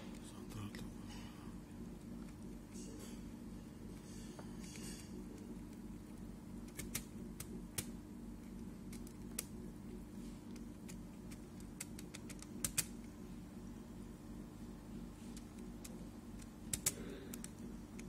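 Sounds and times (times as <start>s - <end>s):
steady low hum: 0.0s - 18.0s
laptop keys clicking: 6.7s - 7.9s, 10.5s - 12.9s, 15.3s - 18.0s.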